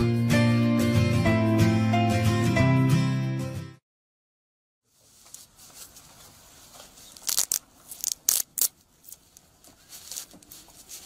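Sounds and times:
glove rustling: 4.9s - 11.0s
velcro strap ripping: 7.0s - 9.4s.

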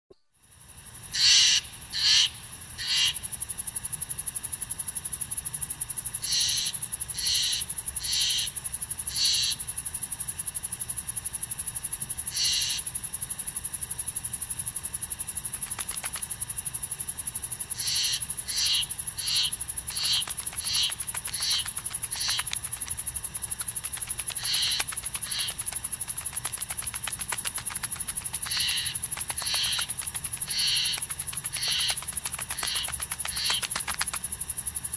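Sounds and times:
high insect drone: 0.4s - 34.9s
bird calling: 17.8s - 34.1s.

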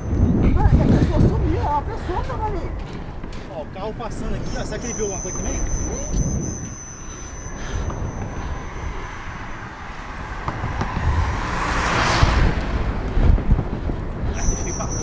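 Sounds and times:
wind buffeting microphone: 0.0s - 15.0s
car passing close by: 7.8s - 14.0s.

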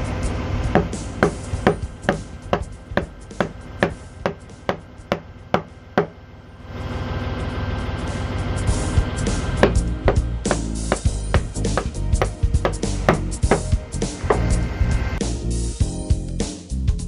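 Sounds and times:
mallet striking chisel into wood: 0.7s - 6.2s, 9.6s - 14.5s.

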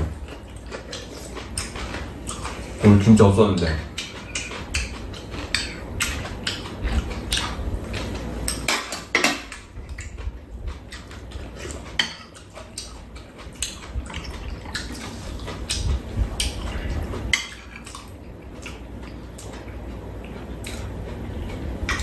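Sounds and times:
utensils clinking against bowls: 0.3s - 6.7s.

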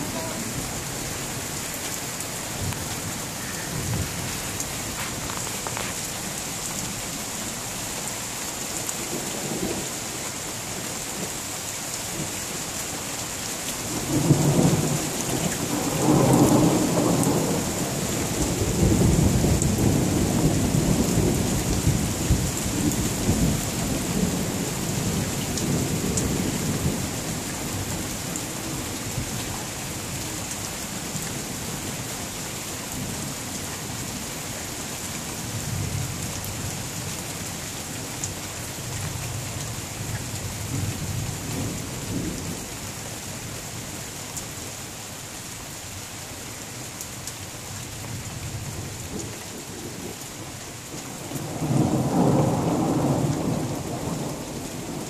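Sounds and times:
steady rain falling: 0.0s - 55.0s.

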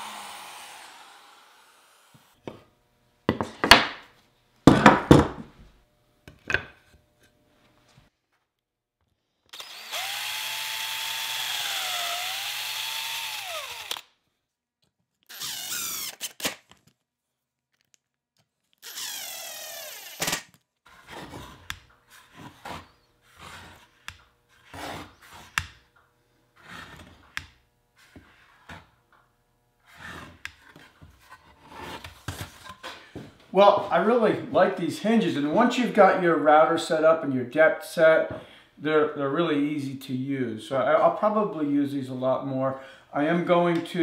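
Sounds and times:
drill motor whining: 0.0s - 2.4s, 9.5s - 14.1s, 15.3s - 16.6s, 18.8s - 20.4s.

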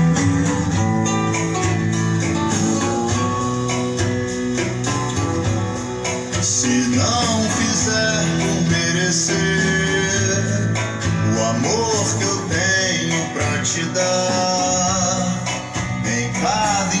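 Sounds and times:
guitar-backed song over speakers: 0.0s - 17.0s.

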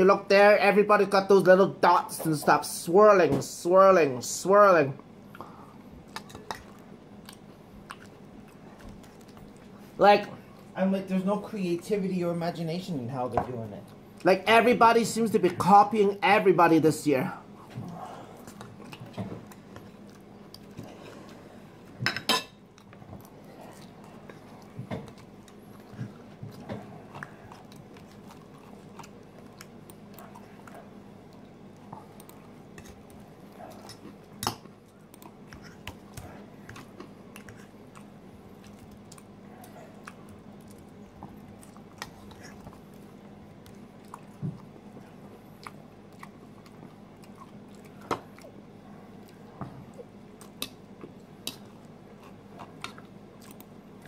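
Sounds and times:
faint steady hum: 0.0s - 54.0s
chewing: 5.3s - 10.7s, 17.6s - 22.0s, 22.6s - 54.0s.

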